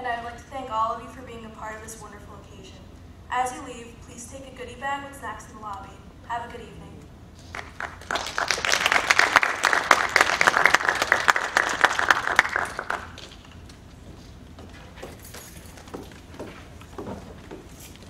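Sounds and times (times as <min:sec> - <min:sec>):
audience clapping: 0:07.5 - 0:13.6.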